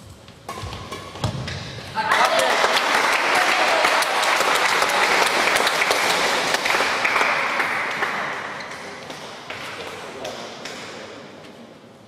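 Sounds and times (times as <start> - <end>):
spectators clapping: 2.1 - 9.0.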